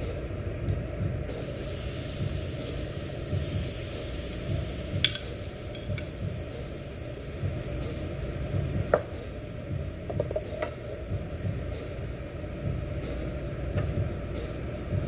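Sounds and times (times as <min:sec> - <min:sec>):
steady low rumble: 0:00.0 - 0:15.0
shrimp sizzling on a hot grill: 0:01.4 - 0:15.0
metal tongs clicking: 0:05.0 - 0:06.1.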